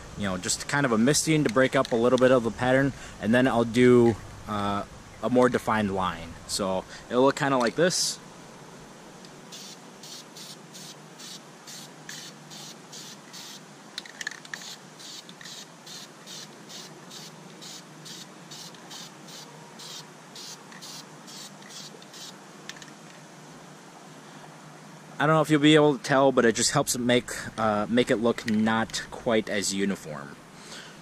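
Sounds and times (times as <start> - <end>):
spray paint can hissing: 9.5 - 13.6, 14.5 - 22.4.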